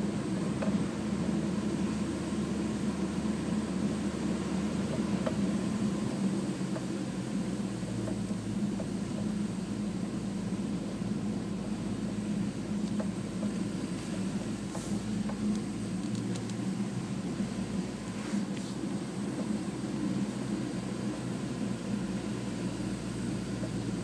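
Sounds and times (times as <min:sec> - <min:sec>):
car engine hum: 0:00.0 - 0:24.0.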